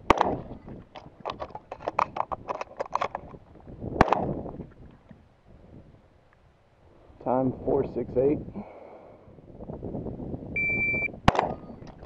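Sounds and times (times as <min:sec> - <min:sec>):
loud shotgun shot: 0:00.0 - 0:00.5, 0:04.0 - 0:04.4, 0:11.2 - 0:11.7
shotgun shells clicking into magazine: 0:00.9 - 0:03.4.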